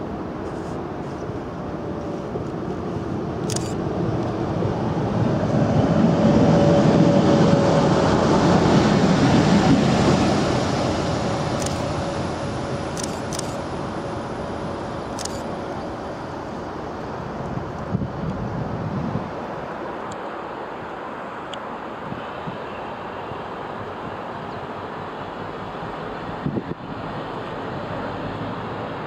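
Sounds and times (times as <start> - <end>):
steady whine: 0.0 - 18.5
diesel locomotive passing: 0.0 - 29.0.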